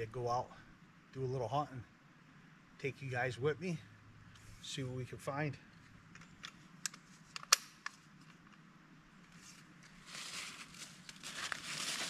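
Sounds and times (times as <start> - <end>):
rifle bolt clicks: 6.2 - 8.0
dry leaves crunching underfoot: 9.4 - 12.0.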